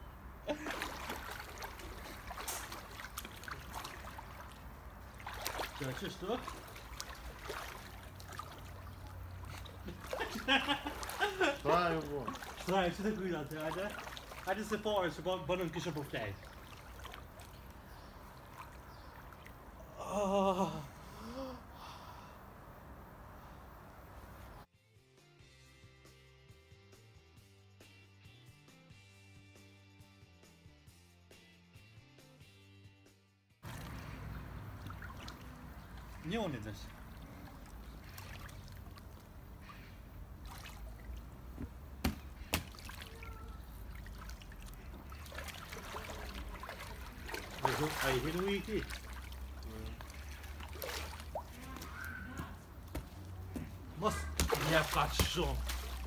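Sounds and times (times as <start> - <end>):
water trickling and lapping: 0.5 - 20.2, 33.6 - 56.0.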